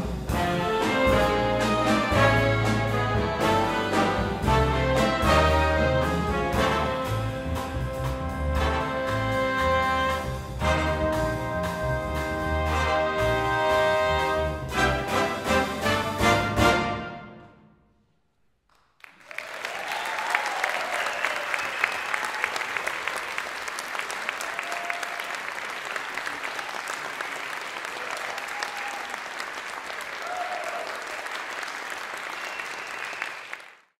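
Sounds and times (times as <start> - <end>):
audience applauding: 18.7 - 34.0
audience shouts: 19.4 - 22.9, 27.9 - 29.3, 30.1 - 31.3.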